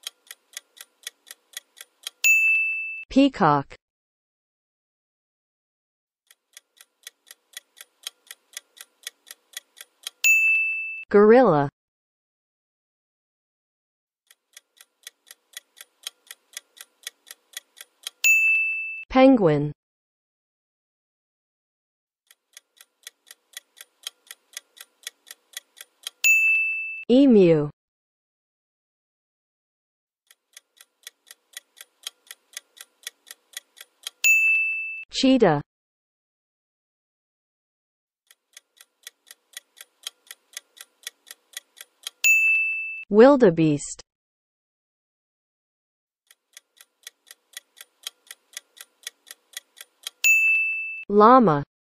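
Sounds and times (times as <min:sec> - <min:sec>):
clock ticking: 0:00.0 - 0:02.5, 0:06.3 - 0:10.4, 0:14.3 - 0:18.4, 0:22.3 - 0:26.6, 0:30.3 - 0:34.6, 0:38.3 - 0:42.6, 0:46.3 - 0:50.5
bright ding with high ring: 0:02.3 - 0:03.0, 0:10.3 - 0:11.0, 0:18.3 - 0:19.0, 0:26.3 - 0:27.0, 0:34.3 - 0:35.0, 0:42.3 - 0:43.0, 0:50.3 - 0:51.0.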